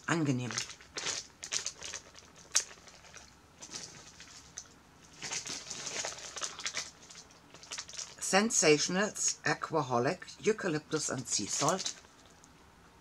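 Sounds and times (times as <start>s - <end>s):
packaging crinkling and rustling: 0.4s - 8.2s, 11.2s - 12.3s.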